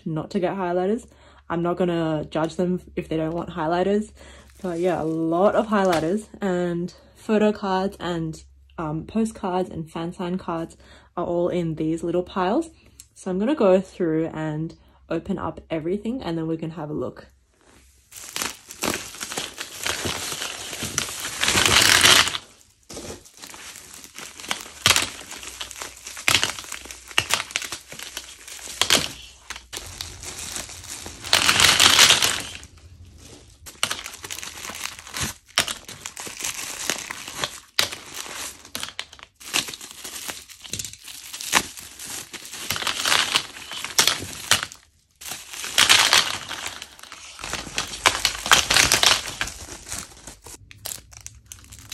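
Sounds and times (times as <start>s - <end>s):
bubble-wrap bags crinkling: 4.3s - 6.3s, 17.7s - 51.9s.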